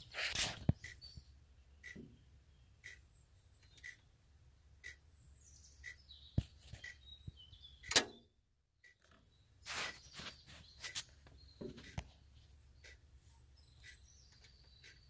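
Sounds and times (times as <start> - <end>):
faint regular ticking: 0.7 - 2.2, 2.8 - 4.1, 4.8 - 5.0, 5.8 - 6.0, 8.8 - 9.2, 11.2 - 13.1, 13.8 - 15.0.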